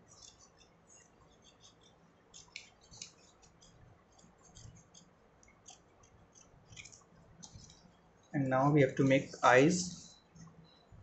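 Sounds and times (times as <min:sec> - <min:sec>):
scissors snipping paper: 0:00.1 - 0:00.6, 0:01.4 - 0:07.8.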